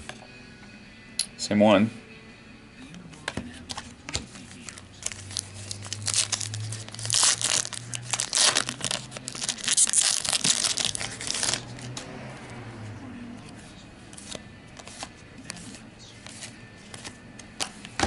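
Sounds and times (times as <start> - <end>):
foil pack tearing and crinkling: 5.0 - 11.6.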